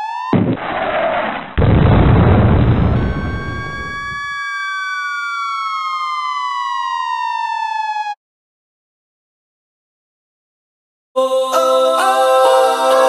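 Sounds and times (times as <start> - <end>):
siren wail: 0.0 - 0.4, 2.6 - 8.2
loud deep noise: 1.6 - 4.2.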